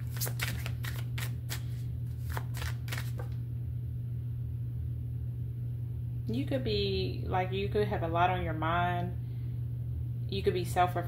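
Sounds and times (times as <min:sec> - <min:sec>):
cards being shuffled: 0:00.0 - 0:03.4
low steady hum: 0:00.0 - 0:11.0.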